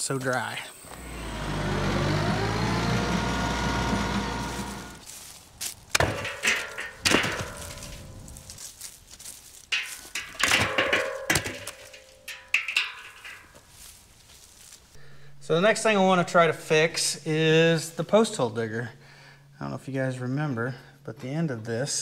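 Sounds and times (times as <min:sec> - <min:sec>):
engine running: 0:00.7 - 0:05.1
wood chunks hitting metal barrel: 0:05.9 - 0:08.5, 0:09.7 - 0:13.6.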